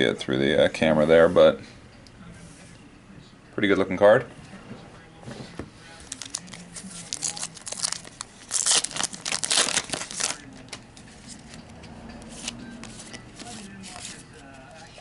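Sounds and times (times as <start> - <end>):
foil wrapper crinkling and tearing: 6.1 - 10.8.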